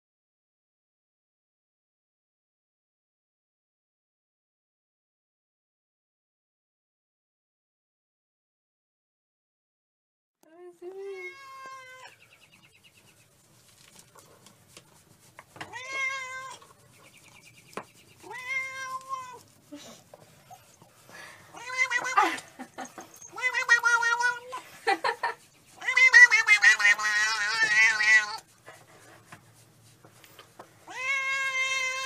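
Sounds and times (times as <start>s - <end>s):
cat meowing: 11.1s - 12.1s, 15.6s - 16.7s, 18.2s - 19.4s, 21.5s - 22.4s, 23.2s - 24.6s, 25.8s - 28.5s, 30.9s - 32.0s.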